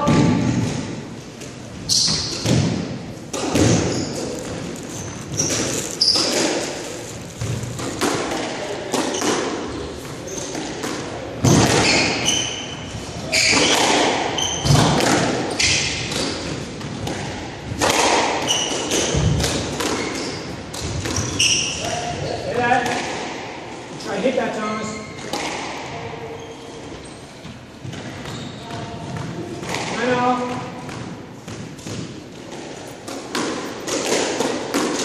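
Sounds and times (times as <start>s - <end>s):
sneakers squeaking on hardwood: 1.6s - 8.1s, 9.0s - 17.0s, 18.4s - 22.6s, 26.2s - 34.2s
squash ball knocks: 2.1s - 4.6s, 7.4s - 9.6s, 10.6s - 12.2s, 13.4s - 21.3s.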